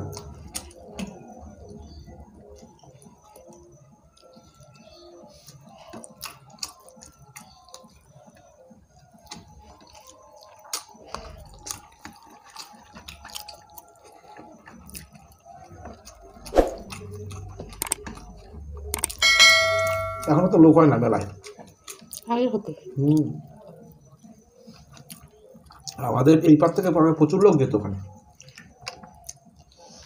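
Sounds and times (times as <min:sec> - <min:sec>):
chewing and lip smacks: 0:00.0 - 0:19.2, 0:21.4 - 0:22.3, 0:23.0 - 0:26.1, 0:28.1 - 0:30.0
fingers mixing rice and curry: 0:00.0 - 0:19.2.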